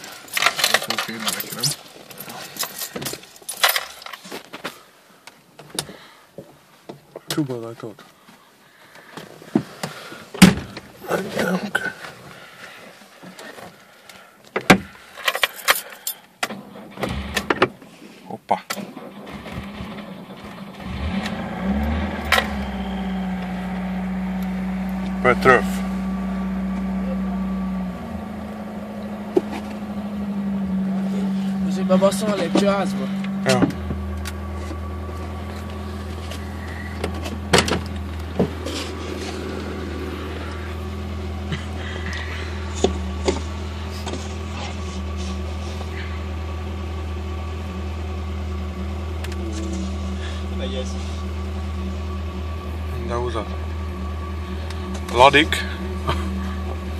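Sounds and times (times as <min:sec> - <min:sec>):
car keys jangling in ignition: 0:00.0 - 0:04.3, 0:15.2 - 0:16.3
car engine idling: 0:18.9 - 0:56.9
low noise: 0:19.0 - 0:56.9.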